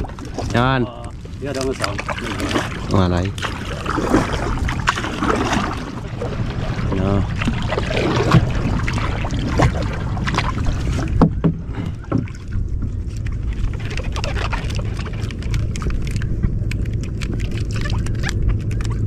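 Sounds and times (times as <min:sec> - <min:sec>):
low boat rumble: 0:00.0 - 0:19.0
water splashes: 0:00.0 - 0:19.0
knocks on boat: 0:11.1 - 0:12.4.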